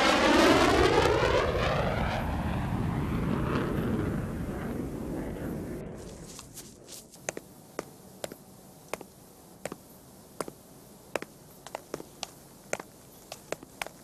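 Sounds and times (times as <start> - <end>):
crisp footsteps: 6.0 - 10.6, 11.2 - 14.0.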